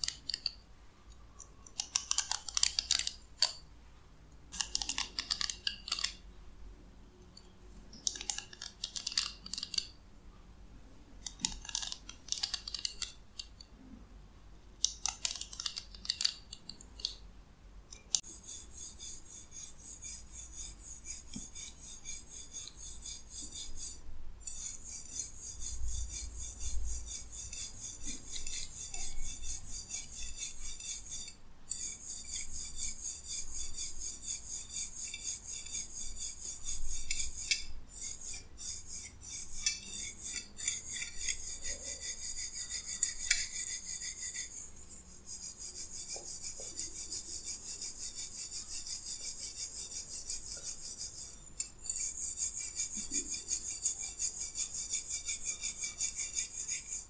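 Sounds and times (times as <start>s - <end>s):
hairbrush bristles scratching: 18.2s - 57.0s.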